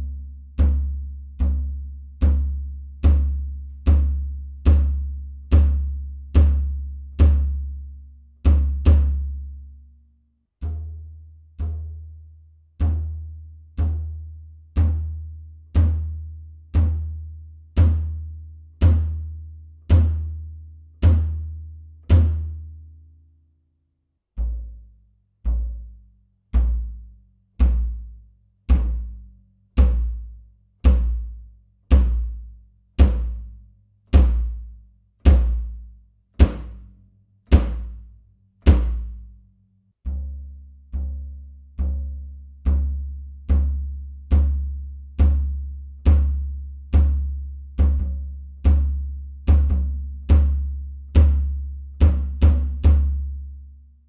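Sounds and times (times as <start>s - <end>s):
bass drum kicks: 27.6s - 36.9s, 37.5s - 38.1s, 42.7s - 53.4s.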